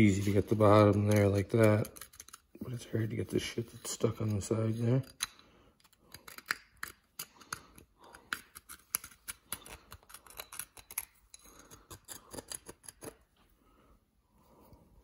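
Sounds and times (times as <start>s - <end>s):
screwdriver scraping metal: 0.2s - 2.6s, 5.0s - 13.2s.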